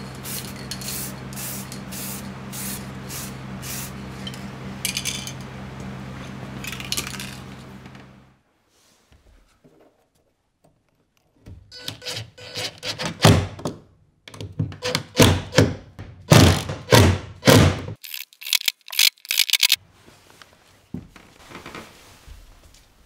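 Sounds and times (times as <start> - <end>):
sharp clicks: 18.0 - 19.8.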